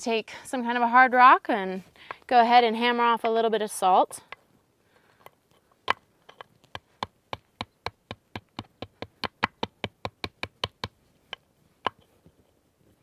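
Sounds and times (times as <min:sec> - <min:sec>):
stone tapping rock salt: 0:05.8 - 0:12.0.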